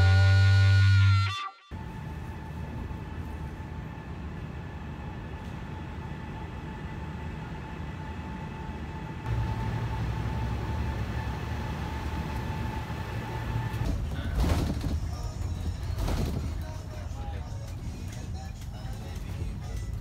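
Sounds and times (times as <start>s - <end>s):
steady high hum: 1.8s - 14.0s
bus engine idling: 1.8s - 20.0s.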